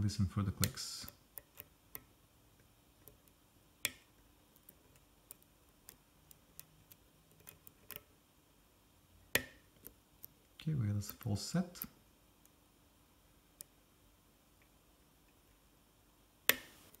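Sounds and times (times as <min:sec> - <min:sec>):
lock pick clicking pins: 0:03.0 - 0:08.1.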